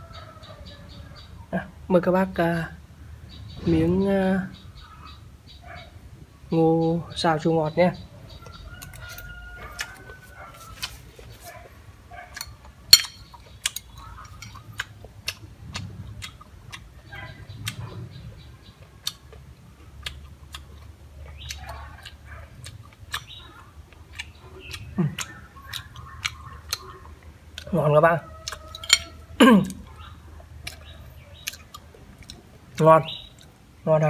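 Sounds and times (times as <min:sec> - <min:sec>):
chewing: 0:08.3 - 0:33.8
spoon clicking on ceramic plate: 0:12.4 - 0:13.8.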